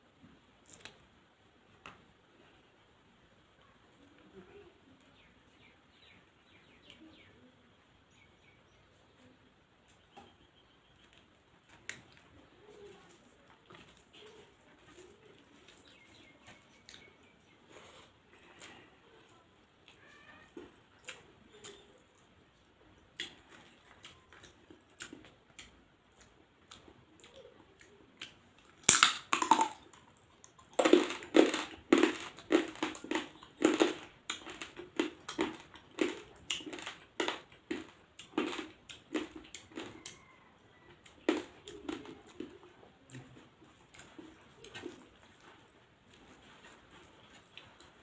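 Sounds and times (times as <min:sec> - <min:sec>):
crab shell cracking and crunching: 0:28.6 - 0:40.3.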